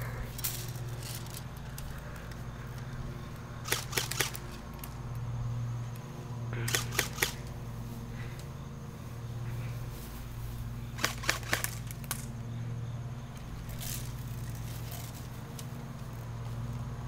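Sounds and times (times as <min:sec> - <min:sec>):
steady low hum: 0:00.0 - 0:17.0
airsoft guns firing: 0:03.6 - 0:04.4, 0:06.6 - 0:07.5, 0:11.0 - 0:12.2.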